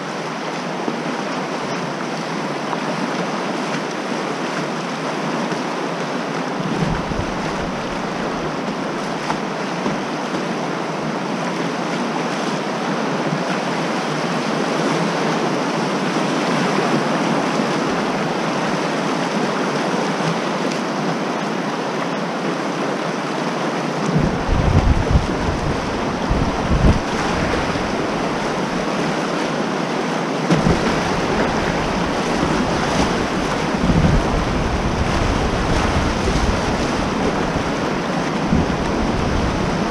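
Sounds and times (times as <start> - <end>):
whitewater rushing and splashing: 0.0 - 39.9
wind buffeting microphone: 6.6 - 8.8, 24.1 - 29.1, 30.5 - 39.9.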